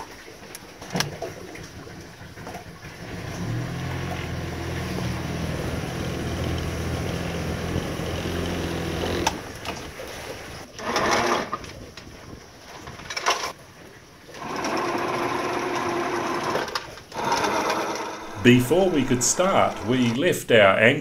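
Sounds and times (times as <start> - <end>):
boat engine running: 2.3 - 10.6, 17.2 - 20.6.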